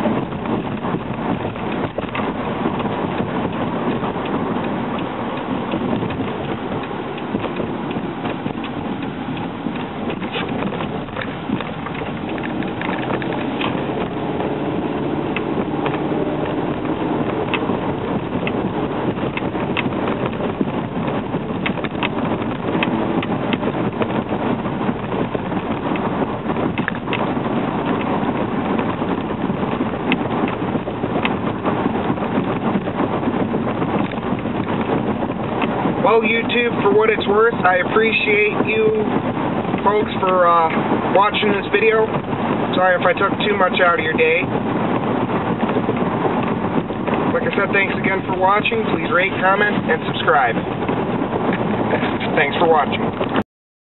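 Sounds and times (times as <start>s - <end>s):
car cabin engine and road noise: 0.0s - 53.4s
small irregular ticks and crackles: 0.4s - 13.8s.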